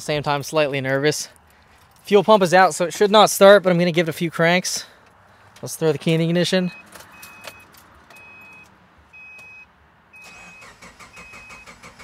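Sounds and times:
car warning chime beeping: 6.6s - 12.0s
car starter cranking engine: 10.2s - 12.0s.

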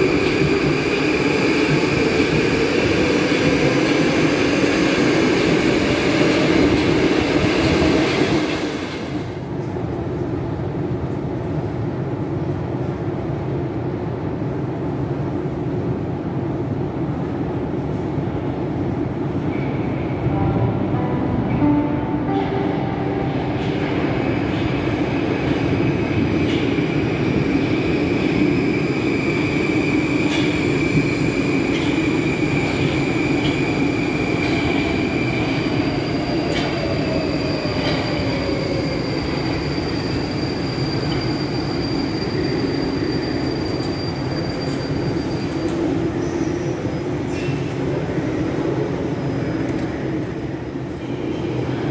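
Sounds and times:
metro train wheels rumbling on rail: 0.0s - 51.9s
train braking to a stop: 21.4s - 47.8s.

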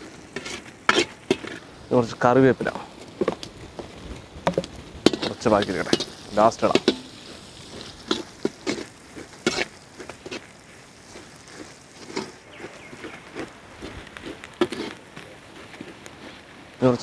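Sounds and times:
faint frying sizzle: 0.0s - 17.0s
ladle scraping metal pan: 0.3s - 1.7s, 4.5s - 10.5s.

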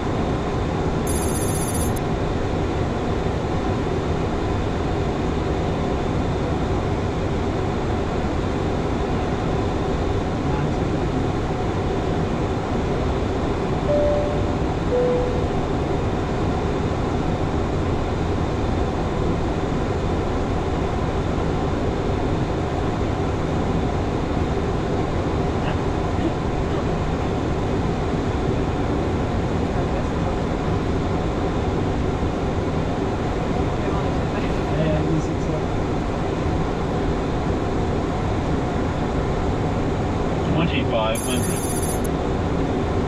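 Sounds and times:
airflow and engine rumble: 0.0s - 43.0s
two-note chime: 13.9s - 15.6s.

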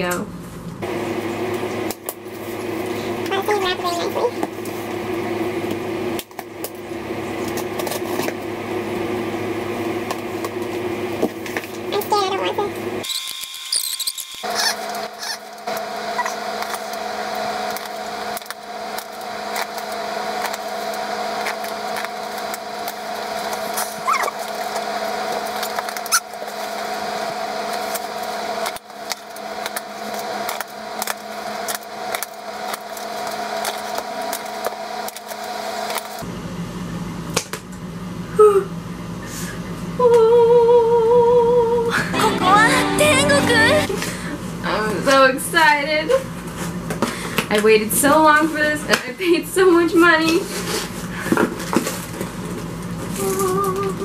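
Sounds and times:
steady hum: 14.2s - 36.3s, 40.0s - 46.0s
packing tape tearing: 17.6s - 26.8s
woman humming: 40.0s - 44.2s, 53.2s - 54.0s.

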